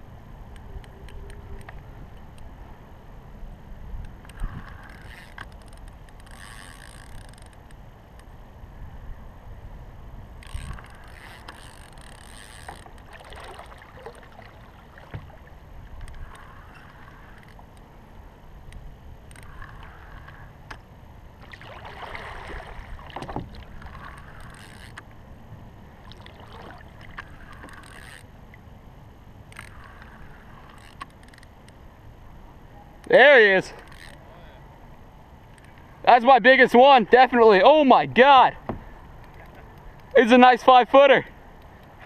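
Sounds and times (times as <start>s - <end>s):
water lapping against kayak hull: 4.1s - 7.7s, 10.4s - 18.3s, 19.2s - 28.8s, 29.5s - 31.8s.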